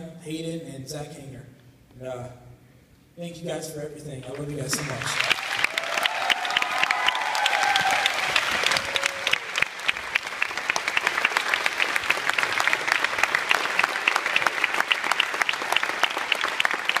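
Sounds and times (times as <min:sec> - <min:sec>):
audience applauding: 0:04.3 - 0:17.0.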